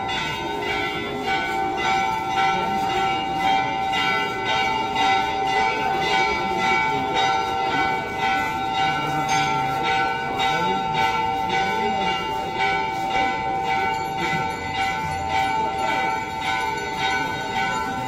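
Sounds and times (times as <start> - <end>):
temple bells ringing: 0.0 - 18.0.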